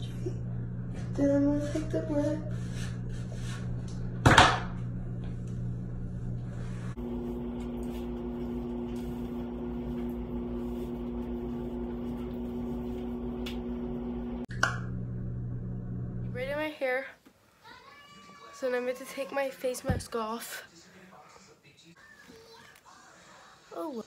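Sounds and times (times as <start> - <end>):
steady machine hum: 0.0 - 16.8.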